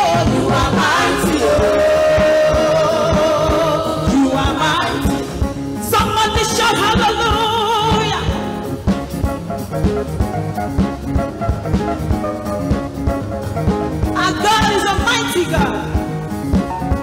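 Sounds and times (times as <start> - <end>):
singers holding long notes: 0.0 - 5.3
drum kit: 0.0 - 17.0
electric guitar: 0.0 - 17.0
keyboard: 0.0 - 17.0.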